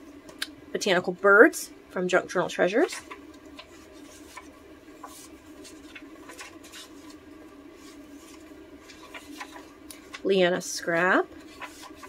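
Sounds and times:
paper pages rustling: 2.8 - 12.0.

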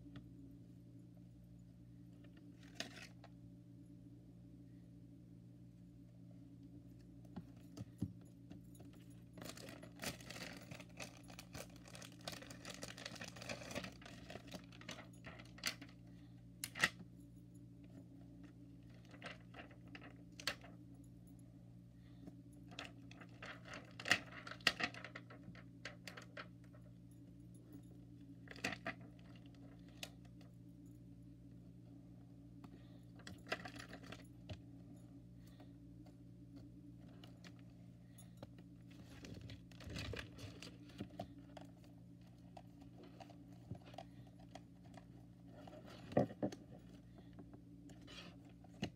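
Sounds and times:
steady low hum: 0.0 - 48.9
plastic sheets crinkling: 9.4 - 15.0.

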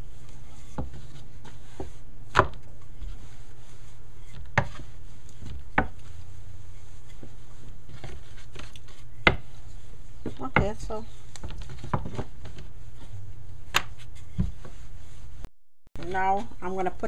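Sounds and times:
rolling pin knocking on board: 1.8 - 2.6, 9.2 - 9.5.

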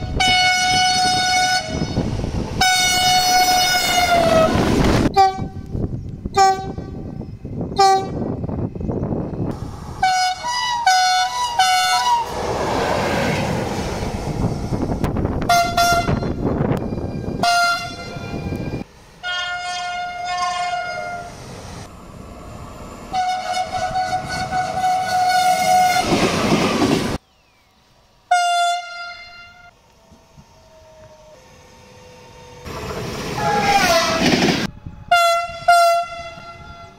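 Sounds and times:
train horn toots: 0.0 - 8.4, 10.0 - 12.3, 15.4 - 21.3, 23.1 - 26.3, 28.3 - 29.8, 33.3 - 36.9
passing train rumble and clatter: 0.0 - 27.2, 28.0 - 36.9.

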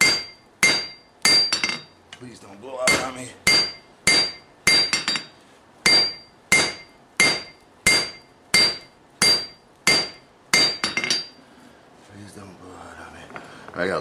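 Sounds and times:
hammer blows ringing on anvil: 0.0 - 2.0, 2.8 - 5.3, 5.9 - 11.4.

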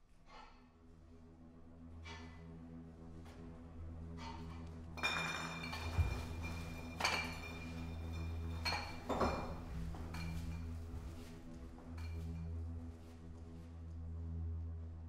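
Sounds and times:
low film score drone: 0.0 - 15.0
glass bottles clinking: 5.0 - 10.8.

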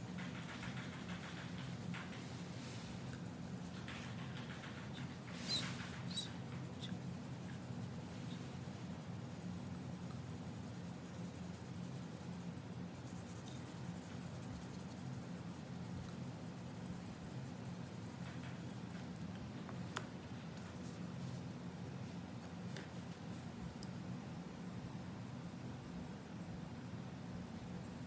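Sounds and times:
sharp ticks: 0.0 - 2.4
pencil scratching on paper: 0.0 - 18.8
steady low hum: 0.0 - 28.0.

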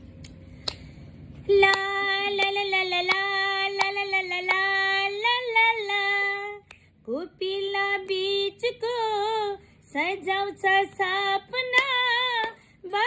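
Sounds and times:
hands clapping to a beat: 1.6 - 4.8, 11.7 - 12.6.

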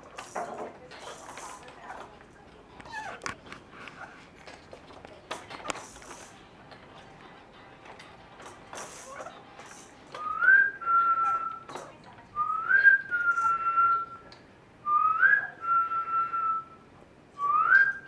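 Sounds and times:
two-part whistle: 10.2 - 11.7, 12.4 - 14.3, 14.9 - 16.8, 17.4 - 18.0.

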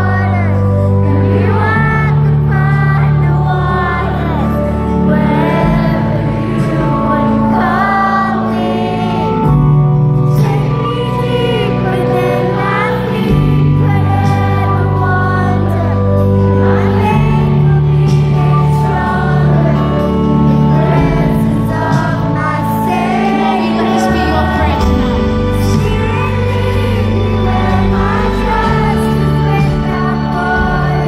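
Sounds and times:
child singing along: 0.0 - 31.0
live concert music with singing: 0.0 - 31.0.

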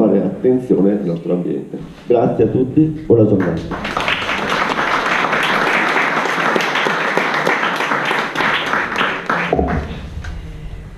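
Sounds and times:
audience applauding: 3.3 - 10.1.

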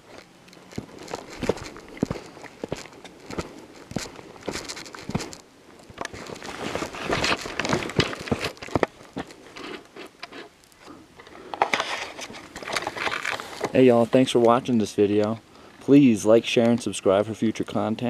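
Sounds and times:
footsteps on trail: 0.0 - 9.8.

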